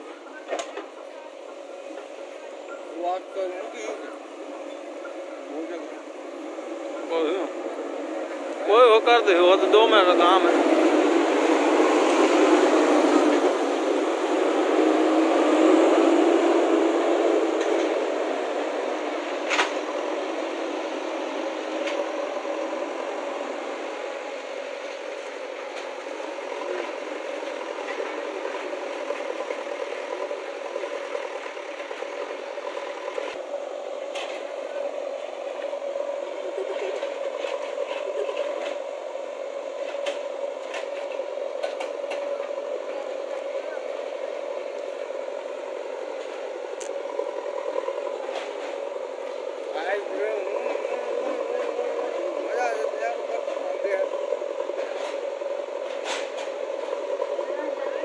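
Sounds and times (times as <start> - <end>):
diesel engine humming: 0.0 - 58.0.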